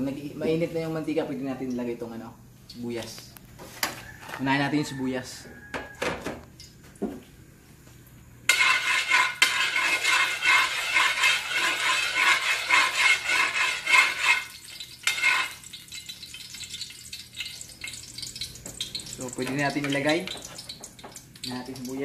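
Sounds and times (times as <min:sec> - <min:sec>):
metal spatula scraping a wok: 0:08.5 - 0:15.7.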